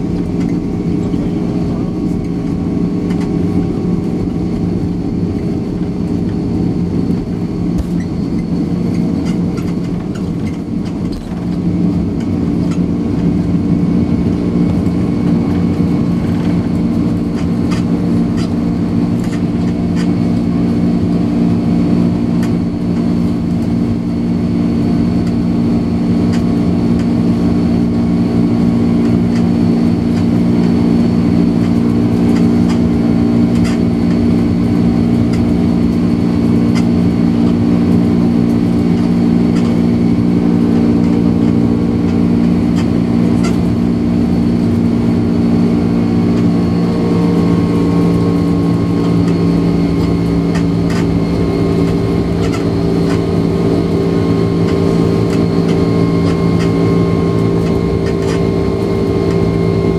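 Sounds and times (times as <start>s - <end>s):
jet engine drone in cabin: 0.0s - 59.9s.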